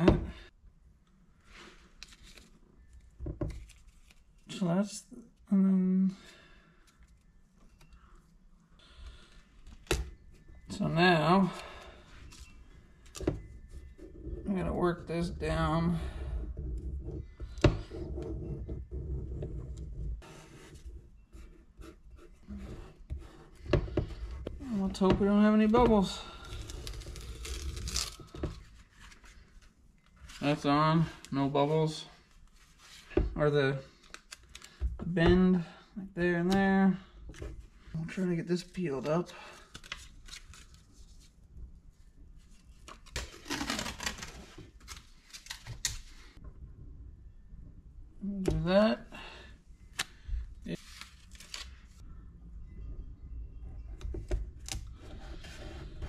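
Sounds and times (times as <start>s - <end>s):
tape peeling and crinkling: 1.8s - 4.5s, 24.1s - 30.7s, 34.0s - 34.8s, 39.6s - 41.3s, 42.4s - 46.4s, 49.9s - 52.0s.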